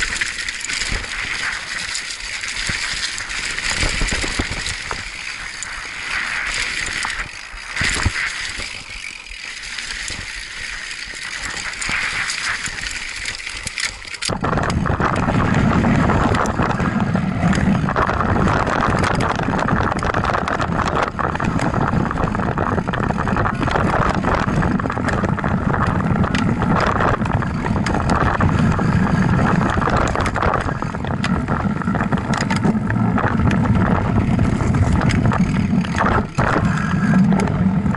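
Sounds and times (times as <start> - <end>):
chain and frame rattling: 0.0 - 14.8
bike tyres crunching on dirt: 0.0 - 37.9
low rumble of tyres: 0.0 - 37.9
wind buffeting camera: 0.0 - 37.9.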